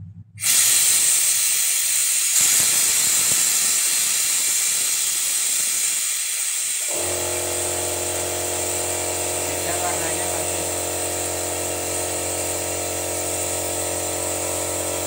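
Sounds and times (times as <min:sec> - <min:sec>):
compressed air hissing: 0:00.4 - 0:15.0
motor hum: 0:06.9 - 0:15.0.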